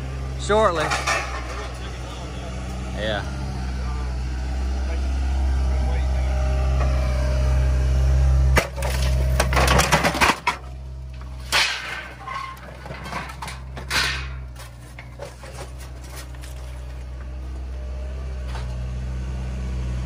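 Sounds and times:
excavator engine running: 0:00.0 - 0:20.0
scrap metal clattering and scraping: 0:00.4 - 0:02.2, 0:08.6 - 0:17.6
sharp metal clanks: 0:11.3 - 0:15.2.

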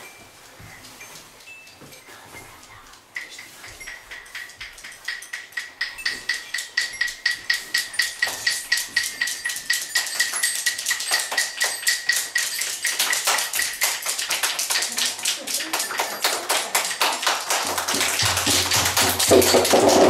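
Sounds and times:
children clapping in rhythm: 0:04.4 - 0:20.0
ringing percussion note: 0:17.8 - 0:20.0.

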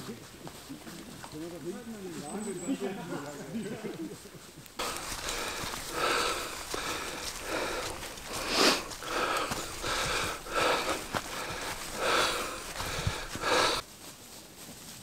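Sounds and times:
man breathing hard: 0:04.8 - 0:13.8.

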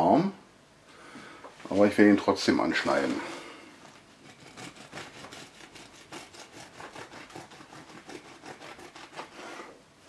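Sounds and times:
bread knife sawing through loaf: 0:04.1 - 0:09.8.

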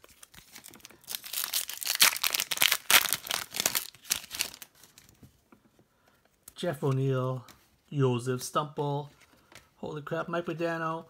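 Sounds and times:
foil wrapper crinkling and tearing: 0:00.0 - 0:05.1.

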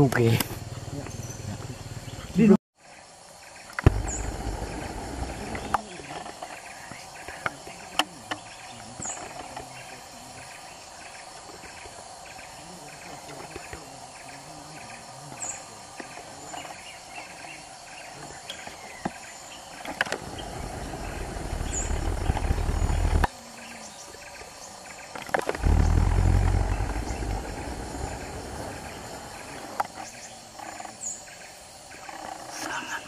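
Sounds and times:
insect drone: 0:02.8 - 0:33.0
loud low rumble: 0:03.9 - 0:05.8, 0:20.2 - 0:23.3, 0:25.6 - 0:29.6.

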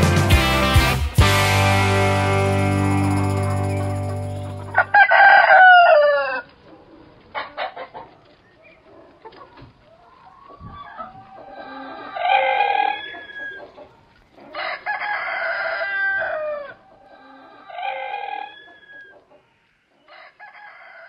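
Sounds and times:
roosters crowing: 0:01.9 - 0:06.6, 0:10.8 - 0:13.7, 0:14.5 - 0:19.1, 0:20.1 - 0:21.0.

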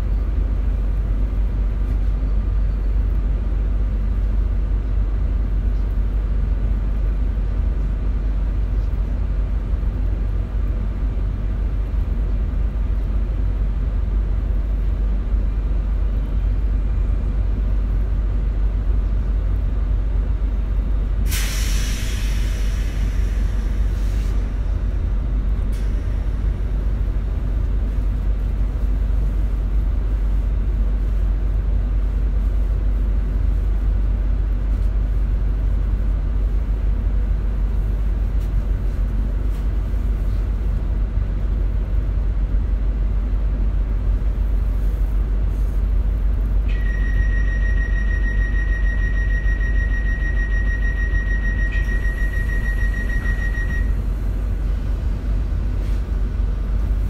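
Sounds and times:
train low rumble: 0:00.0 - 0:57.0
compressed air hiss: 0:21.3 - 0:24.4.

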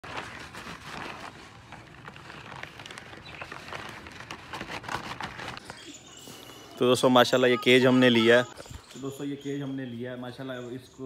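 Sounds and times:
paper bag crinkling: 0:00.0 - 0:05.9.

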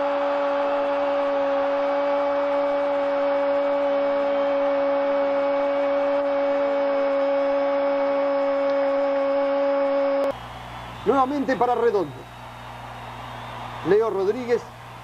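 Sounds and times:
steady hum: 0:00.0 - 0:11.2.

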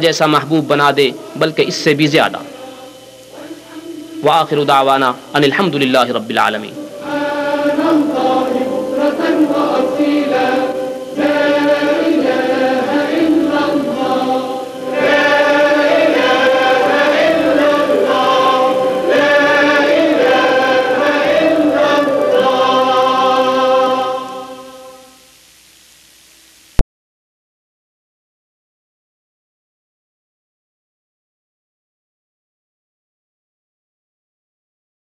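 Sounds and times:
choir singing a chant-like melody: 0:00.0 - 0:25.2.

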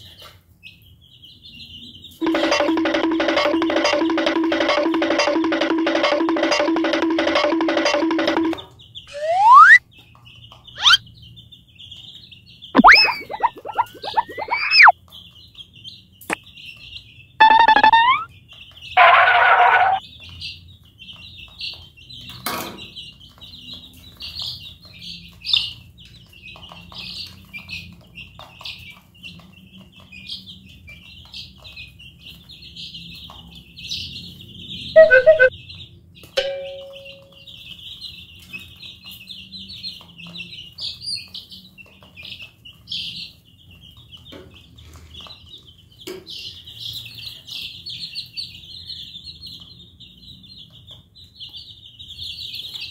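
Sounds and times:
chicks peeping: 0:00.0 - 0:52.9
brief pitched sound: 0:09.1 - 0:09.8, 0:10.8 - 0:11.0, 0:12.8 - 0:14.9, 0:17.4 - 0:18.3, 0:35.0 - 0:35.5.

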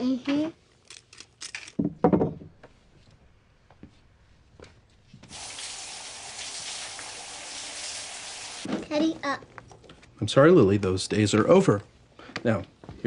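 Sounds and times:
shower water running: 0:05.2 - 0:08.7.

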